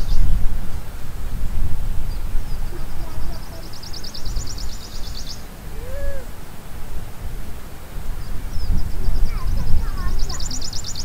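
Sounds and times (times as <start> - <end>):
wind rumbling on microphone: 0.0 - 11.0
short rising and falling call: 5.6 - 6.4.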